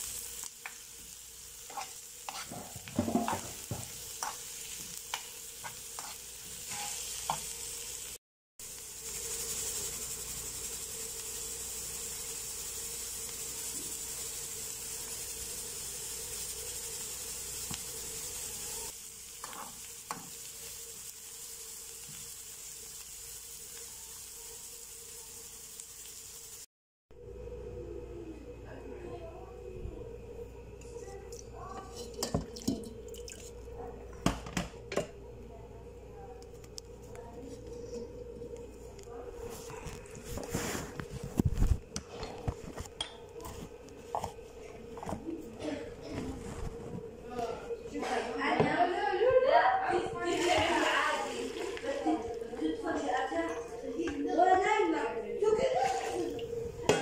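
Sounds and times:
onions sizzling in oil: 0:00.0 - 0:26.7, 0:40.2 - 0:45.5, 0:47.9 - 0:54.8
utensil scraping pan: 0:01.6 - 0:07.5.

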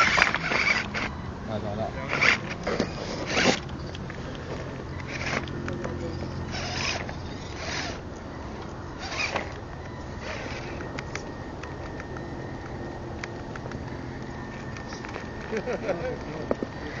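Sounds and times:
electric motor humming: 0:00.0 - 0:17.0.

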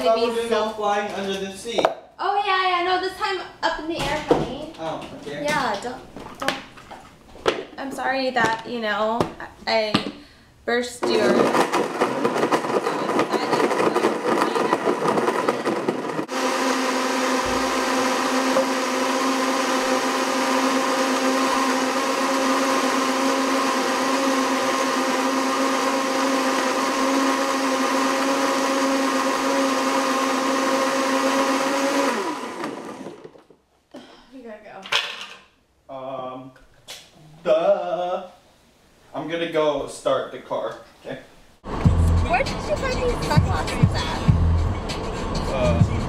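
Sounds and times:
blender whirring: 0:11.0 - 0:33.4.

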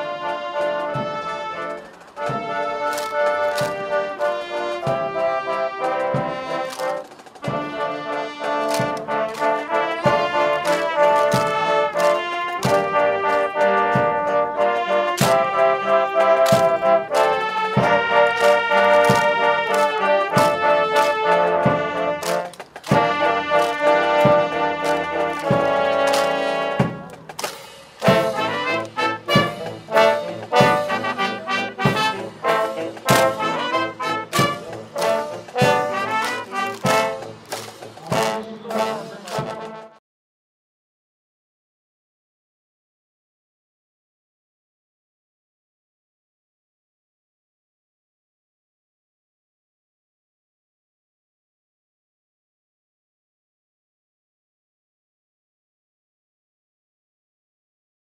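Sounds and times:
brass instruments playing melody: 0:00.0 - 0:40.0
drum beat: 0:00.2 - 0:39.8.

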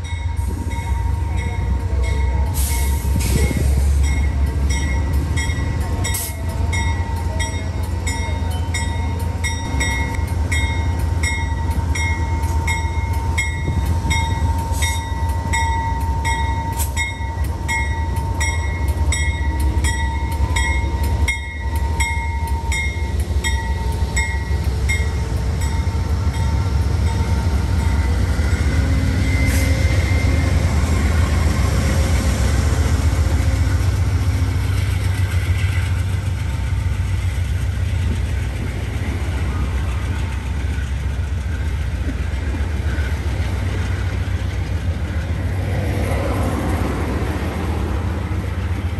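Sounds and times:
locomotive bell ringing: 0:00.0 - 0:32.6
diesel locomotive rumble: 0:00.0 - 0:48.9
faint steady squeal: 0:10.8 - 0:36.1.

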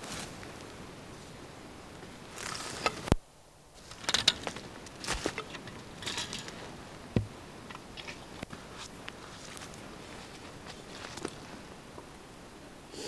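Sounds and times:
wooden saw frame rattling: 0:03.9 - 0:06.8
dull thump: 0:07.1 - 0:07.4.

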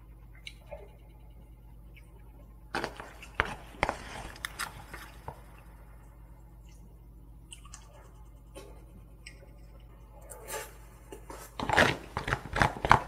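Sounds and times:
spoon scraping plastic container: 0:02.8 - 0:05.2.

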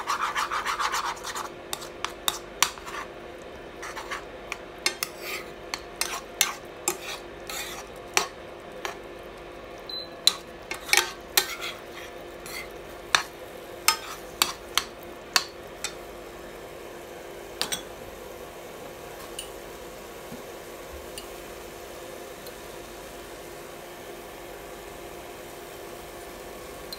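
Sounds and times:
spatula scraping frying pan: 0:00.0 - 0:09.1, 0:10.3 - 0:16.0
food frying in pan: 0:00.0 - 0:26.9.

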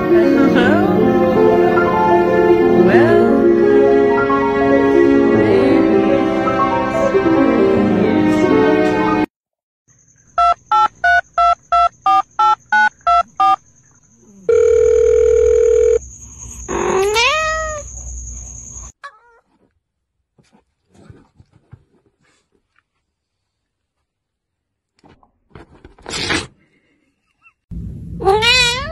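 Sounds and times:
music: 0:00.0 - 0:09.3
steady phone tone: 0:14.5 - 0:16.0
cat meow: 0:16.7 - 0:17.9, 0:19.0 - 0:19.4, 0:28.2 - 0:28.9.

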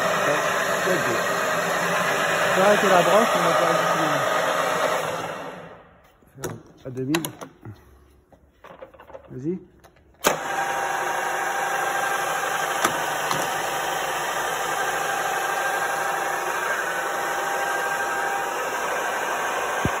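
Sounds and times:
drilling machine whirring: 0:00.0 - 0:05.8, 0:10.2 - 0:20.0.

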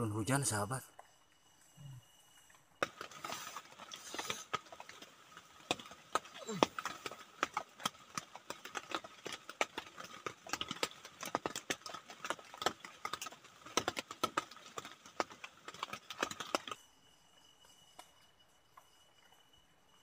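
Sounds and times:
rain tapping on tent fabric: 0:02.8 - 0:16.8
high insect trill: 0:16.4 - 0:20.0.

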